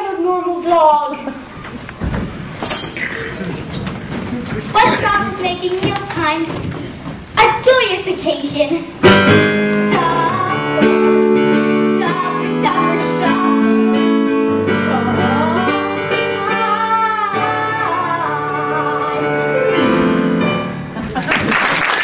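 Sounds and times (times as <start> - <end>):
girl singing: 7.4 - 9.0, 9.6 - 20.0
piano accompaniment: 8.6 - 21.2.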